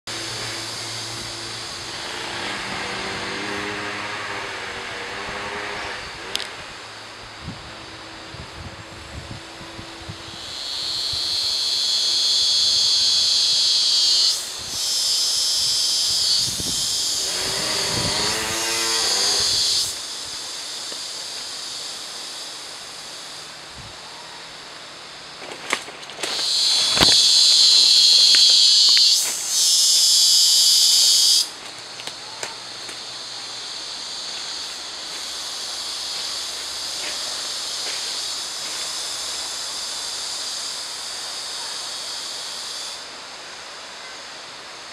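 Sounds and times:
insects buzzing drone: 0.1 - 44.9
low wavering call: 26.3 - 31.5.

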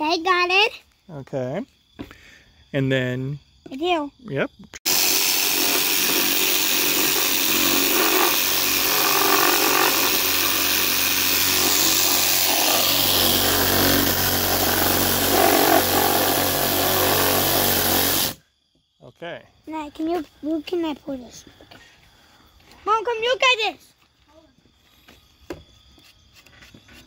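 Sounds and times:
reciprocating saw cutting wood: 4.9 - 18.4.

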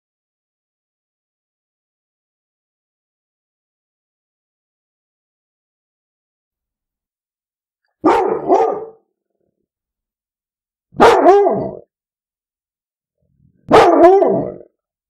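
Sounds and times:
dog barking: 8.0 - 9.1, 11.0 - 11.9, 13.7 - 14.7.

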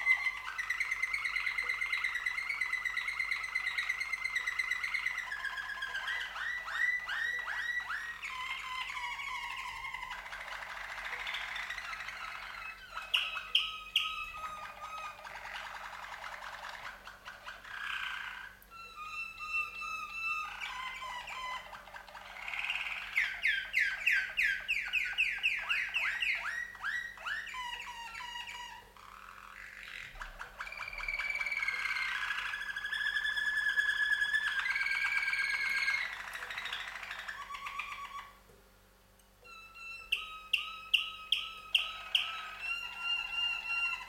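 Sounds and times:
canaries singing: 0.0 - 38.5, 39.2 - 44.0.

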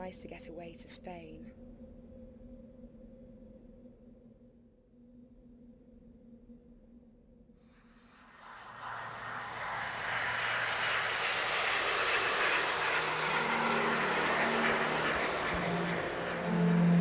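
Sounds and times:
high falling whine: 8.3 - 17.0
jet aircraft noise: 8.3 - 17.0.

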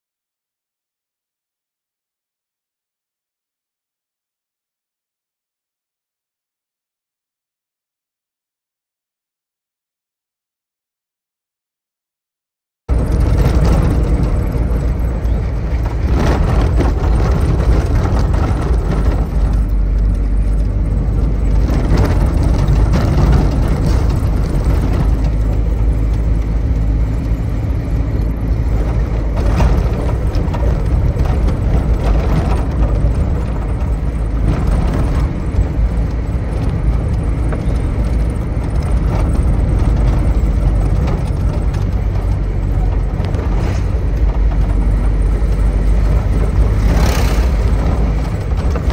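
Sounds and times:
knocks and rattles: 12.9 - 48.9
vehicle driving rumble: 12.9 - 48.9.

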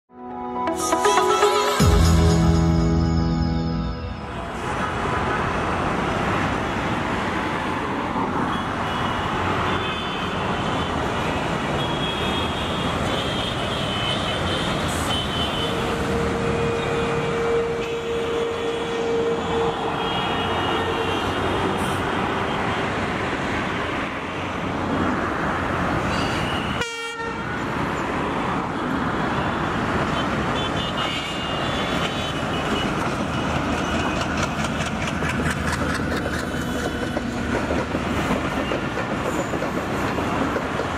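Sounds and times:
road traffic noise: 0.2 - 40.9
train running along track: 0.6 - 40.9
train horn: 15.0 - 22.0, 26.7 - 27.4.

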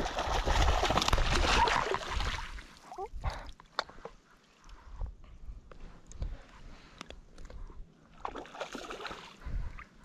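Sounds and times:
water splashing and sloshing: 0.0 - 4.8, 7.3 - 10.0.

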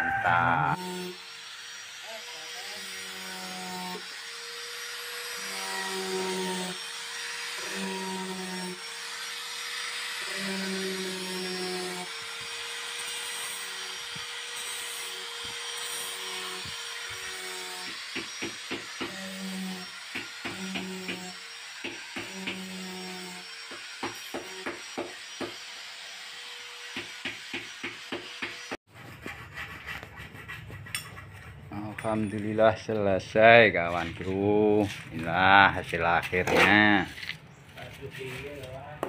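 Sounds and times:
electric grinder sanding: 0.6 - 29.5.

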